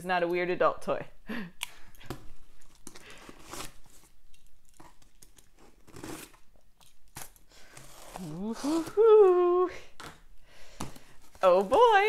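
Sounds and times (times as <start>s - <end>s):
packing tape scratching and tearing: 2.0s - 9.5s, 11.0s - 12.0s.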